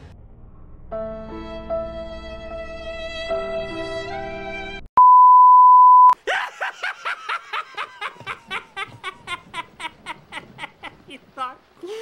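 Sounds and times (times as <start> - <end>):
loud steady beep: 5.0 - 6.2
man laughing in bursts: 6.2 - 11.2.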